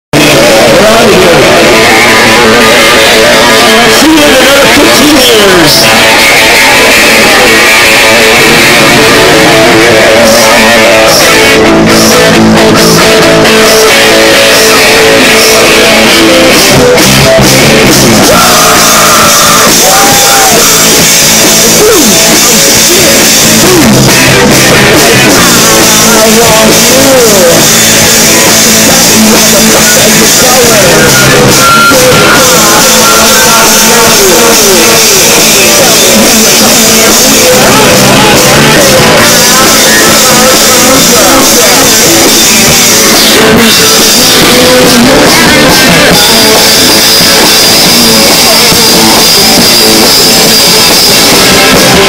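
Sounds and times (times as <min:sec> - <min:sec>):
live rock music over speakers: 0:00.1 - 0:52.0.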